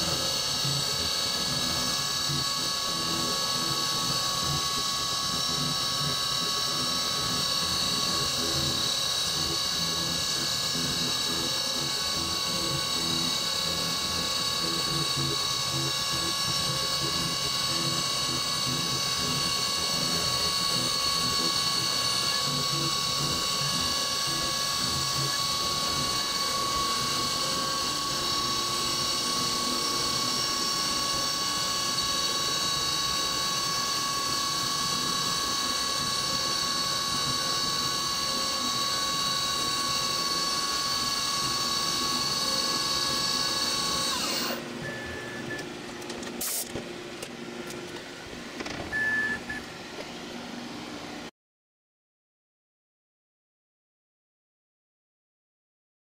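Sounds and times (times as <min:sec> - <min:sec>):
milling machine spindle whine: 0:00.0 - 0:51.2
short beeps: 0:48.9 - 0:49.6.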